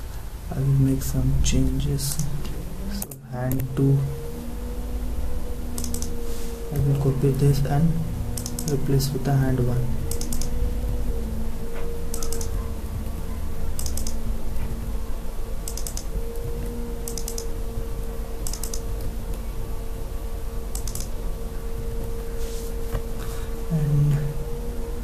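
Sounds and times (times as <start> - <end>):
low electrical hum: 0.0 - 25.0
keyboard keystrokes: 5.8 - 6.1, 8.4 - 8.8, 10.1 - 10.6, 12.1 - 12.6, 13.8 - 14.2, 15.6 - 17.5, 18.4 - 18.8, 20.7 - 21.2.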